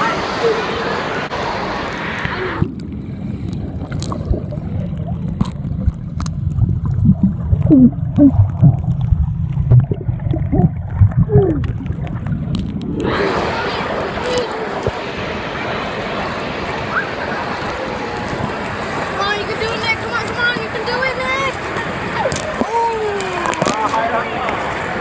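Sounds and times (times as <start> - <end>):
muffled underwater rumble: 0.0 - 25.0
bubbling gurgles: 2.3 - 15.1.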